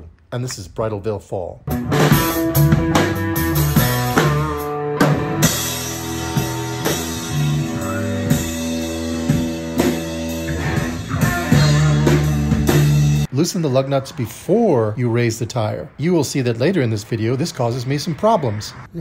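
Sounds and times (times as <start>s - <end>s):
drum kit steady beat: 1.7s - 13.3s
rock band playing: 1.7s - 13.3s.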